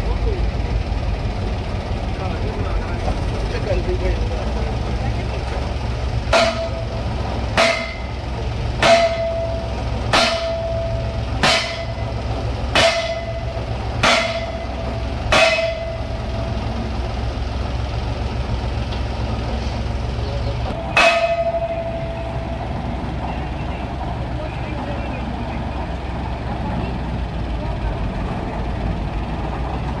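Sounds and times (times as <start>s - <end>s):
engine humming: 0.0s - 30.0s
hammer clanging on metal pipe: 6.3s - 6.9s, 7.6s - 8.2s, 8.8s - 16.2s, 20.8s - 22.7s.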